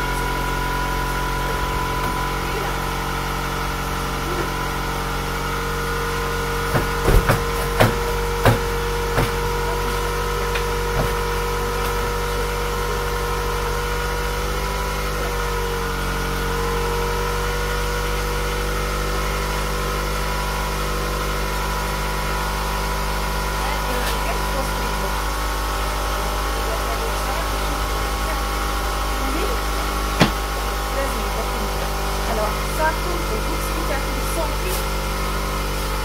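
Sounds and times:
car engine idling: 0.0s - 36.0s
sharp knocks: 6.7s - 9.5s, 30.2s - 30.4s.

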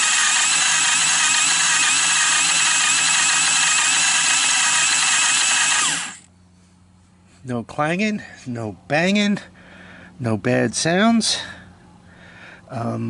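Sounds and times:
electric starter whine: 0.0s - 6.3s.

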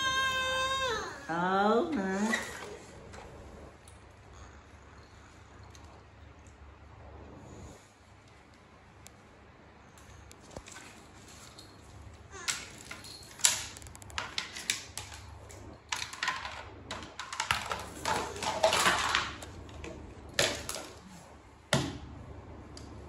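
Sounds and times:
plastic toys clattering on tiles: 10.6s - 21.1s.

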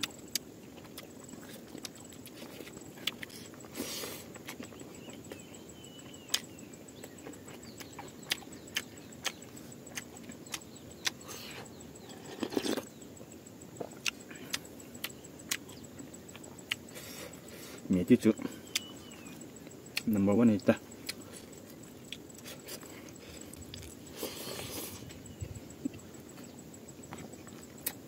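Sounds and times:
chewing with wet mouth clicks: 0.0s - 28.0s
crunching or rustling: 7.2s - 12.9s.

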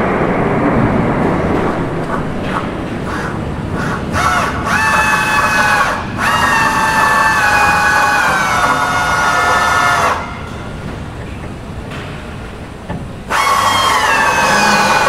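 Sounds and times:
drill whining: 13.3s - 15.0s.

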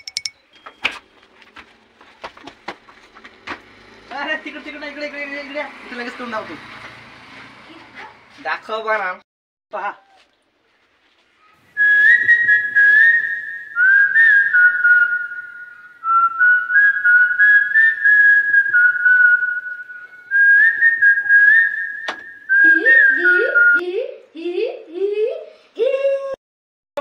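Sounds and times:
person whistling a tune: 11.8s - 23.8s.

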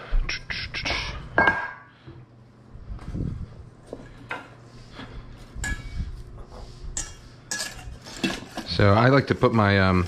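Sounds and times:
metal pan clanking: 7.0s - 8.8s.

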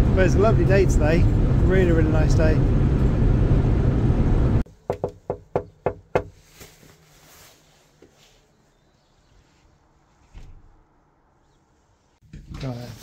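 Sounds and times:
knocking on door: 4.9s - 6.3s.

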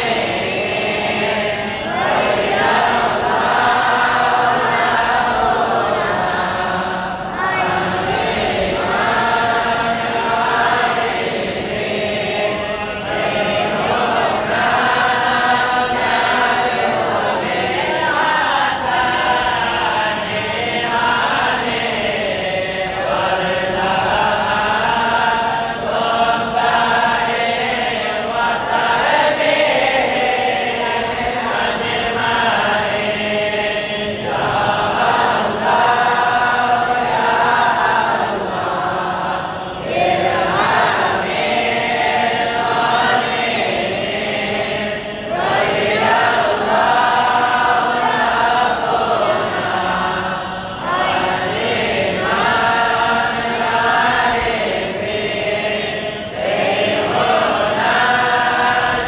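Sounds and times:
group chanting in unison: 0.0s - 59.0s.

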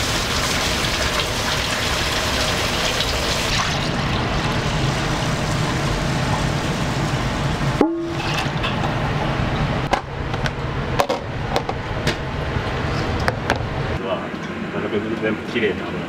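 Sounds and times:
gas wok burner roaring: 0.0s - 14.8s
short tone: 7.8s - 8.3s.

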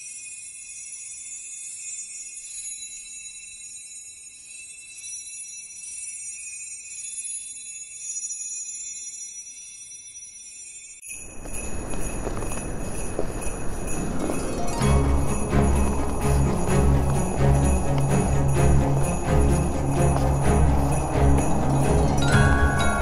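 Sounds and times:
small bells ringing steadily: 0.0s - 23.0s
low rumbling noise: 11.7s - 23.0s.

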